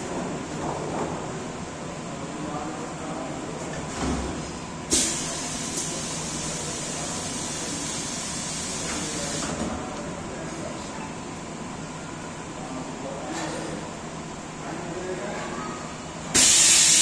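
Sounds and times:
compressed air hiss: 0:04.9 - 0:09.5, 0:16.3 - 0:17.0.

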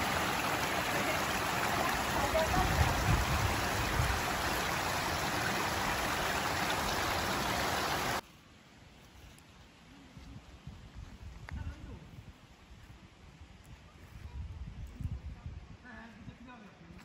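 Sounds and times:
stream running over stones: 0:00.0 - 0:08.2.

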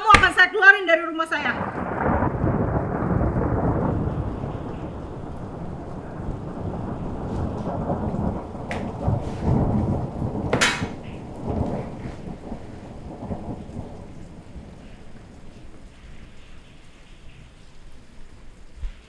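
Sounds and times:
papers slapping on glass table: 0:00.0 - 0:00.4
steady rain: 0:00.0 - 0:19.0
thunder rumbling: 0:00.0 - 0:19.0.

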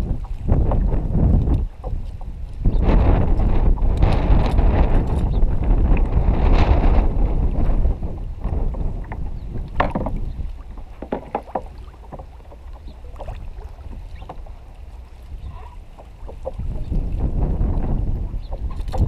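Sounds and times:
water lapping at hull: 0:00.0 - 0:19.0
wind buffeting microphone: 0:00.0 - 0:19.0
sharp clicks and knocks: 0:09.7 - 0:10.2, 0:11.0 - 0:12.3.

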